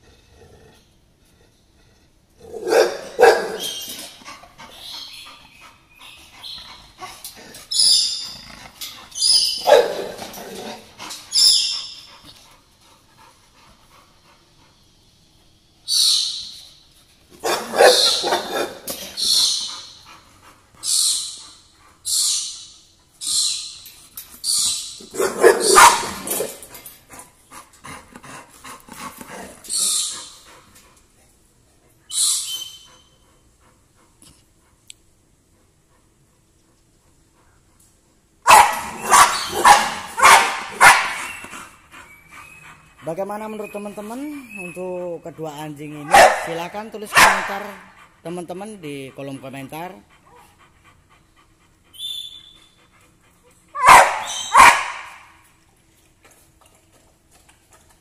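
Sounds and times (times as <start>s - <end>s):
dogs barking: 2.4s - 5.2s, 8.8s - 11.9s, 17.4s - 20.1s, 25.0s - 26.8s, 38.4s - 41.7s, 45.9s - 48.0s, 53.7s - 55.4s.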